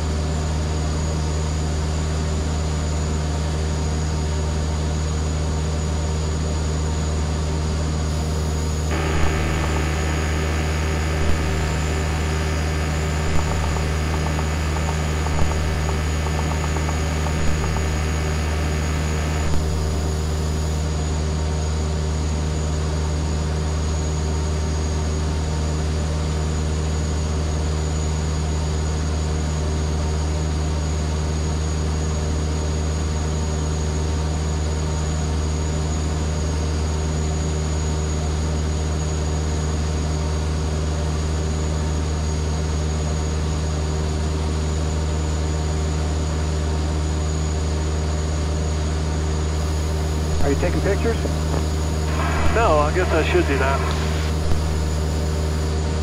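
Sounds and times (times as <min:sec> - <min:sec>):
aircraft engine and propeller drone: 0:00.0 - 0:22.3, 0:41.8 - 0:56.0.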